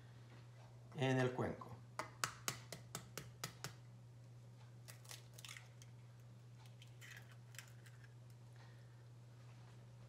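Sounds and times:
egg tapping on bowl rim: 0:02.0 - 0:03.8
eggshell crackling: 0:04.8 - 0:08.4.

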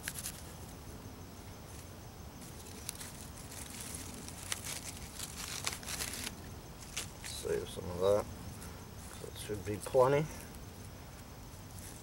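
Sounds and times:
steady background hiss: 0:00.0 - 0:12.0
bark tinder rustling and crackling: 0:02.4 - 0:07.5.

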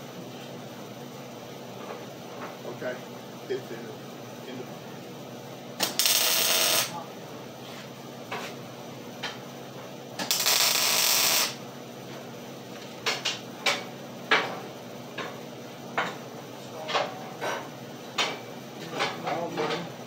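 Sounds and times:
welding arc crackling hiss: 0:05.8 - 0:07.0, 0:10.2 - 0:11.6.

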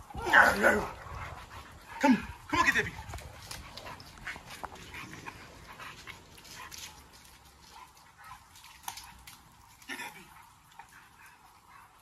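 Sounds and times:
dog claws clicking on concrete: 0:02.9 - 0:09.8.

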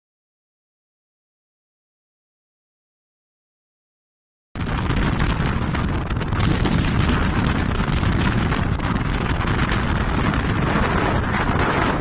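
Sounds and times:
wind noise on microphone: 0:04.6 - 0:12.0.

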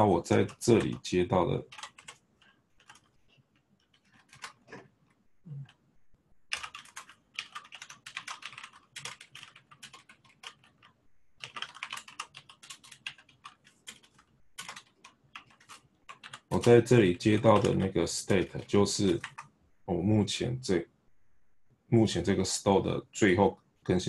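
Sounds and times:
typing on computer keyboard: 0:00.3 - 0:04.9, 0:06.5 - 0:19.5.

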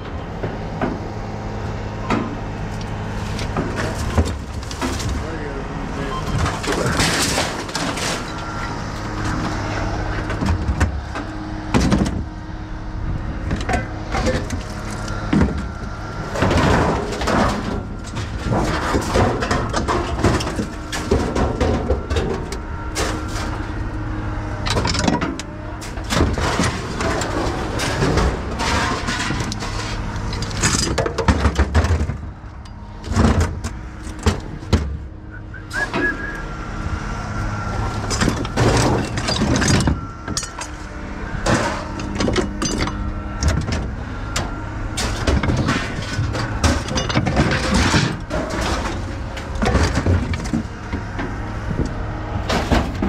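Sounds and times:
steady engine hum: 0:00.0 - 0:53.0
scrap metal clanking and crashing: 0:01.8 - 0:12.4, 0:13.0 - 0:53.0.

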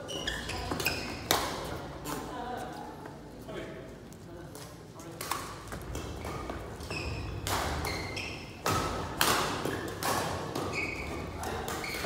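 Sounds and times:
shoes squeaking on court: 0:00.0 - 0:01.7, 0:05.8 - 0:09.0, 0:09.7 - 0:12.0
racket hitting shuttlecock: 0:07.3 - 0:12.0.

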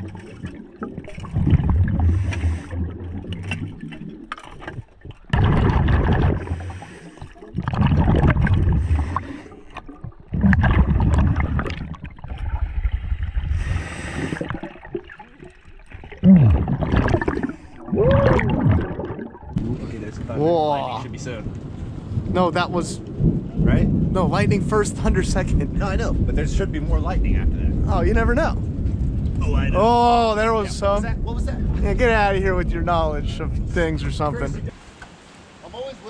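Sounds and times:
exhaled bubbles underwater: 0:00.0 - 0:20.0
hissing regulator inhalations: 0:02.0 - 0:03.1, 0:06.3 - 0:07.4, 0:08.6 - 0:09.9, 0:13.5 - 0:14.7.

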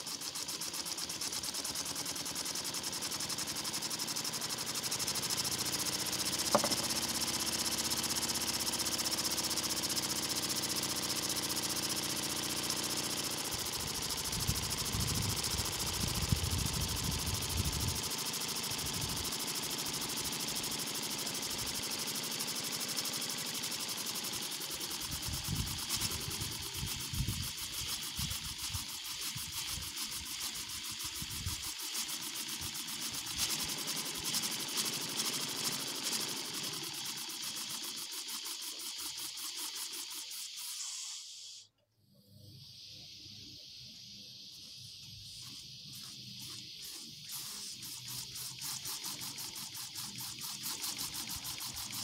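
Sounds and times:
steam engine hissing and beating: 0:00.0 - 0:41.7, 0:42.4 - 0:52.0
sharp click: 0:06.4 - 0:07.3.

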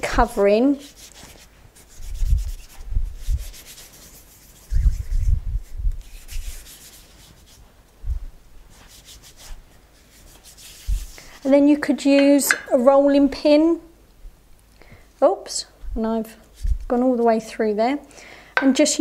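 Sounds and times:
hands rubbing icing: 0:00.4 - 0:07.9, 0:08.7 - 0:11.6
dull low thumps: 0:04.8 - 0:06.1, 0:08.0 - 0:08.4.

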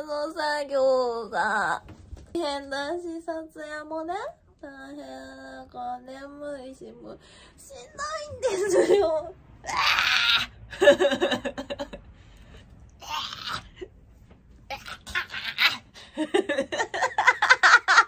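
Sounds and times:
woman laughing: 0:08.4 - 0:09.3, 0:10.7 - 0:12.0, 0:14.7 - 0:18.0.

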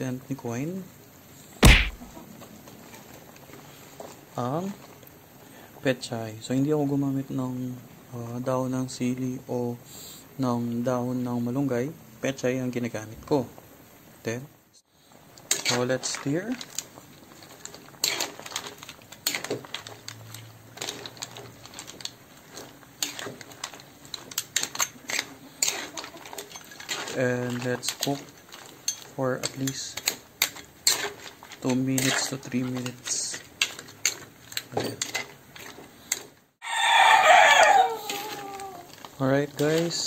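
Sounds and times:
spatula scraping wok: 0:15.5 - 0:36.3
rooster crowing: 0:36.6 - 0:38.9.

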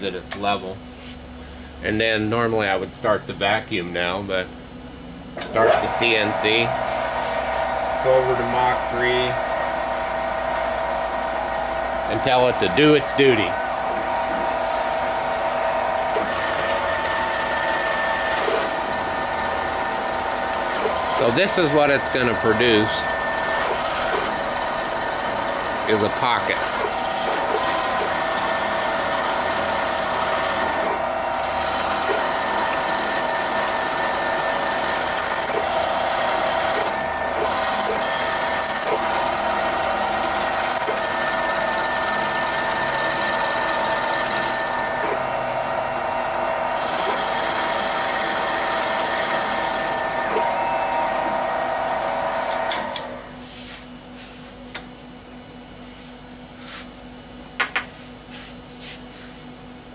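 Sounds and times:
milling machine whine: 0:00.0 - 0:53.5.

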